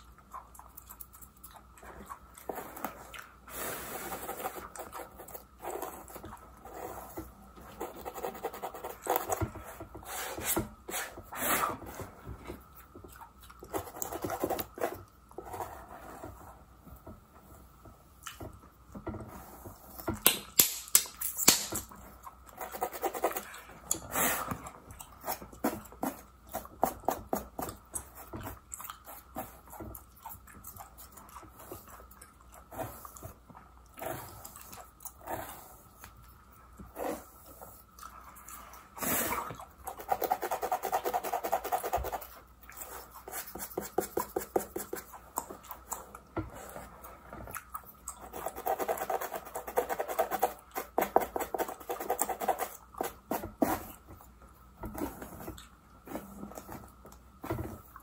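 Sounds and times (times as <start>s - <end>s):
gum chewing and smacking: 0.0s - 3.4s, 12.6s - 15.4s, 19.9s - 40.1s, 42.2s - 49.0s.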